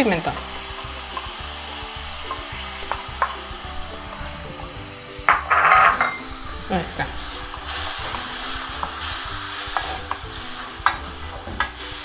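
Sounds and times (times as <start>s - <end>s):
vegetables sizzling in a pan: 0.0s - 12.0s
wooden spoon stirring: 0.0s - 12.0s
spoon taps: 2.2s - 3.7s, 5.3s - 6.3s.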